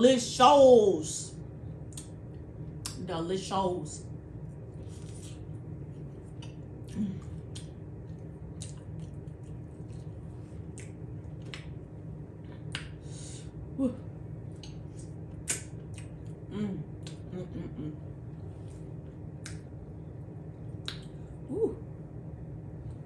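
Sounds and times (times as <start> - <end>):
low hum: 0.0 - 23.0
wet lip smacks: 1.9 - 2.2, 10.7 - 11.7, 14.6 - 16.4, 17.0 - 17.3, 20.8 - 21.2
person chewing food: 4.7 - 13.0, 14.5 - 17.3.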